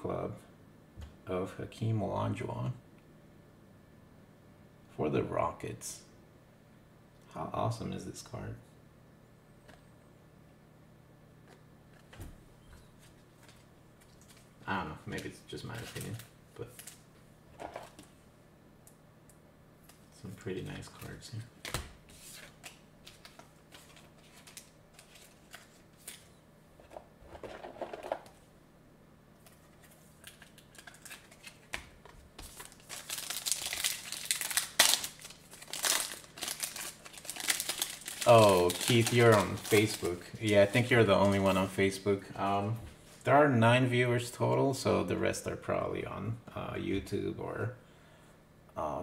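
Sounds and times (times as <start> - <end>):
foil wrapper crinkling and tearing: 15.2 - 17.0, 22.1 - 26.3, 29.8 - 41.7.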